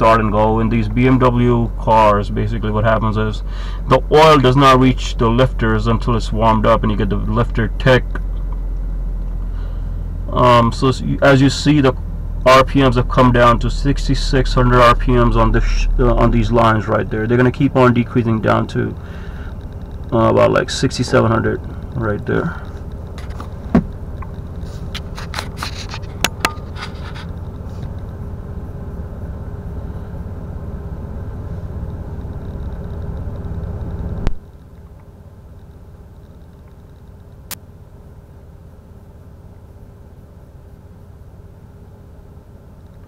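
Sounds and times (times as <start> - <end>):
car engine idling: 0.0 - 43.0
scrapes and clicks: 22.6 - 28.0.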